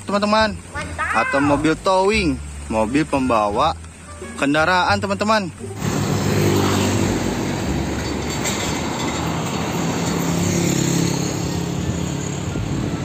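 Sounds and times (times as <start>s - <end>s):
tyre and road noise: 0.0s - 13.0s
truck engine hum: 5.5s - 13.0s.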